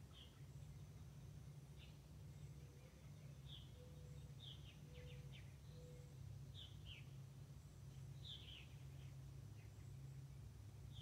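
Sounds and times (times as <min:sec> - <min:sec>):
low steady rumble: 0:00.0 - 0:11.0
bird chirps: 0:01.8 - 0:07.2, 0:07.9 - 0:10.0.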